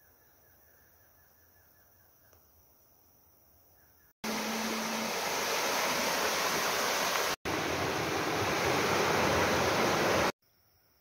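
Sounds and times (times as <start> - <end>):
stream water rushing over rocks: 4.2 - 10.3.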